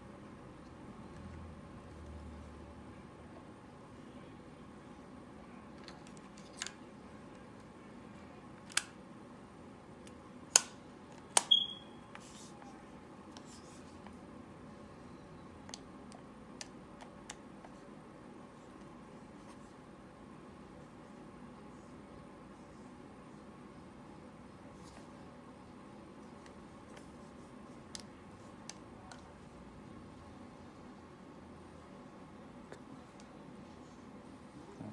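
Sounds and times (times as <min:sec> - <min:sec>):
brief ringing squeak: 0:11.5 - 0:12.0.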